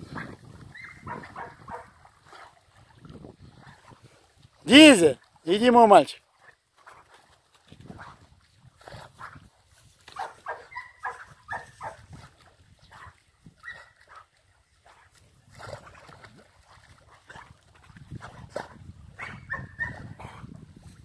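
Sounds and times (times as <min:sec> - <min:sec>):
dog barking and yelping: 0:00.2 - 0:01.9, 0:10.2 - 0:12.0, 0:19.2 - 0:20.2.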